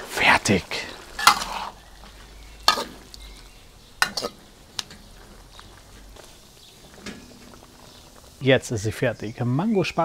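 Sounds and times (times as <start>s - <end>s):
sauce simmering: 0.0s - 10.0s
spatula scraping metal wok: 1.2s - 1.8s, 2.6s - 3.2s, 4.0s - 5.1s.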